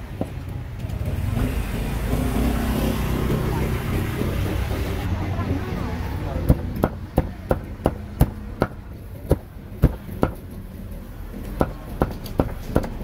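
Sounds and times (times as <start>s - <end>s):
cleaver chopping on a block: 6.5s - 10.6s, 11.4s - 13.0s.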